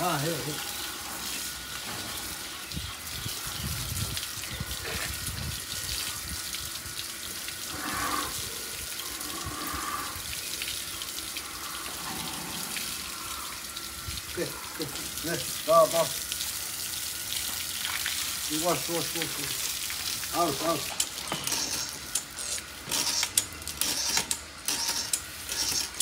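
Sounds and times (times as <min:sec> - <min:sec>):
garden hose spraying water: 0:00.0 - 0:26.0.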